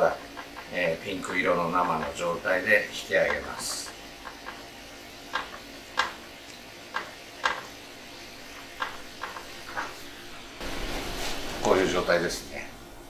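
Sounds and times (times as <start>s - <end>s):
chopsticks tapping a pan: 0.0s - 10.1s
water hissing at a boil: 0.0s - 12.8s.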